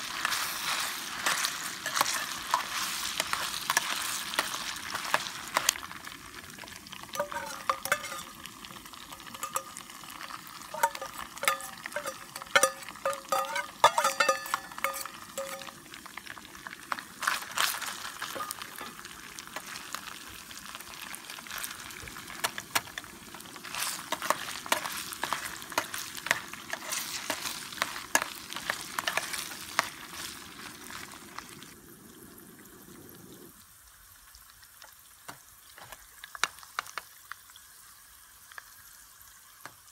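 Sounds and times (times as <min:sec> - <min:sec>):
food sizzling in hot oil: 0:00.0 - 0:39.9
metal ladle scraping a tin: 0:00.2 - 0:05.8, 0:07.2 - 0:08.4, 0:09.1 - 0:15.8, 0:18.3 - 0:19.0, 0:23.7 - 0:29.9.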